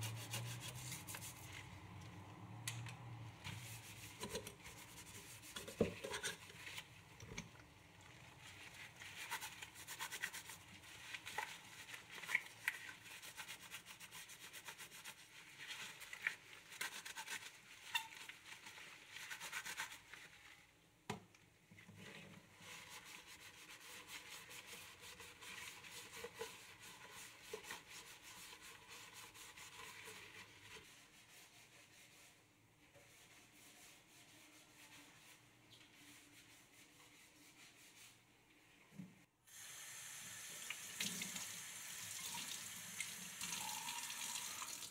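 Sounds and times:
sponge scrubbing metal sink: 0:00.0 - 0:01.8, 0:03.4 - 0:07.2, 0:07.8 - 0:20.7, 0:21.8 - 0:38.4.

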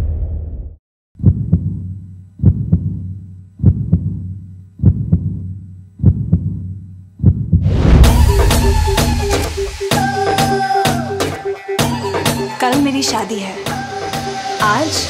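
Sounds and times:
low rumble: 0:00.0 - 0:00.8, 0:07.5 - 0:09.9
heartbeat thumps: 0:01.2 - 0:01.8, 0:02.4 - 0:09.8.

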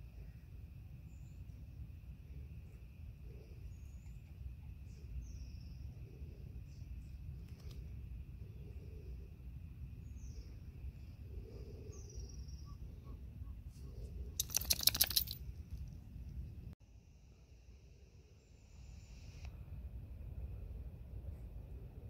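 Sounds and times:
rapid rattle of clicks: 0:14.4 - 0:15.4.

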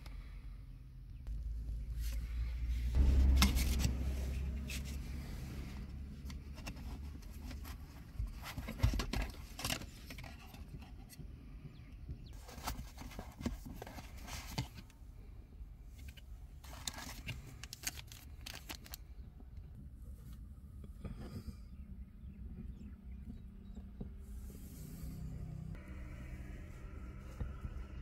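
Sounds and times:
low handling rumble: 0:00.8 - 0:08.4, 0:19.8 - 0:28.0
cardboard and foam rustling: 0:04.7 - 0:11.2, 0:12.3 - 0:14.9, 0:16.6 - 0:19.0.

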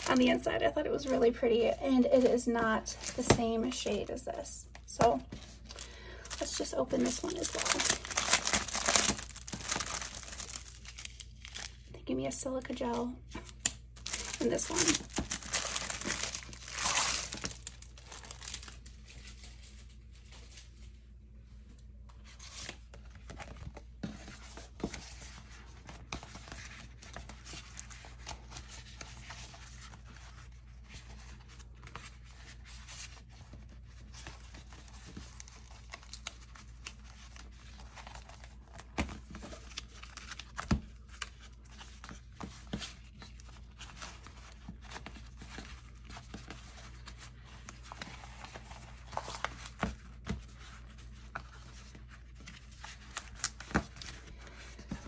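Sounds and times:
plastic crinkling and rustling: 0:00.0 - 0:21.0.

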